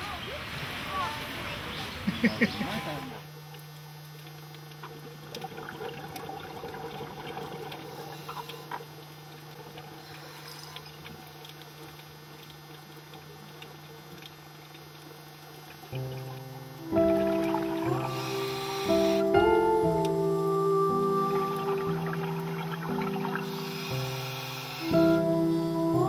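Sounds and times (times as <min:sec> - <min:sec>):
steady low hum: 0:01.9 - 0:26.0
crackling clicks underwater: 0:03.3 - 0:16.7
music with held tones: 0:15.9 - 0:26.0.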